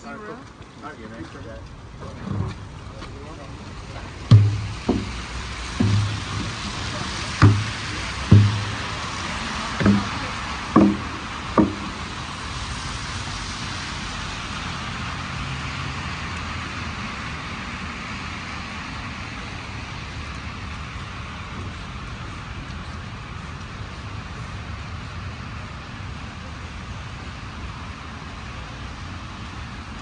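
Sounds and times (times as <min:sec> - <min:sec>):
traffic hiss on snowy street: 0:00.0 - 0:30.0
dull thumps: 0:04.3 - 0:12.4.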